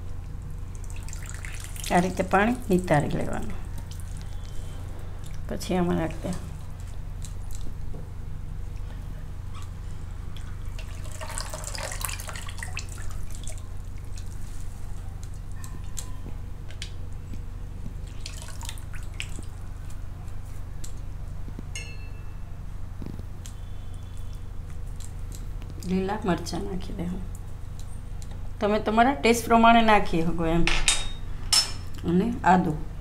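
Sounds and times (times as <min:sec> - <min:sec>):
steady low hum: 0:00.0 - 0:33.0
wet pats and drips: 0:06.3 - 0:08.1, 0:16.7 - 0:21.1.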